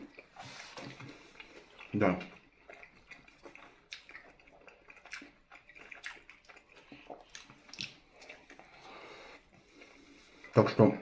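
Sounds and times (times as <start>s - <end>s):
person chewing: 0.0s - 10.9s
wet mouth clicks and smacks: 1.4s - 8.7s.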